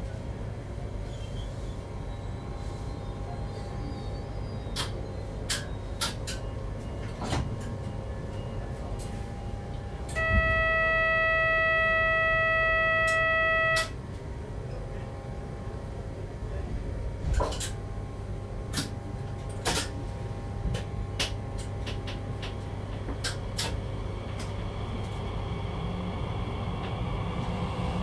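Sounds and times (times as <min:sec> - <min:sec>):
train running low rumble: 0:00.0 - 0:28.0
loud steady single-pitched tone: 0:07.9 - 0:14.1.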